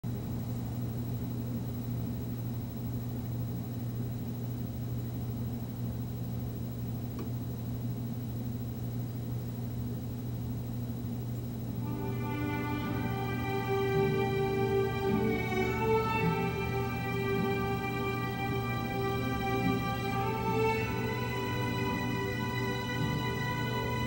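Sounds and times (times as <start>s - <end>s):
orchestral music with strings: 11.8s - 24.0s.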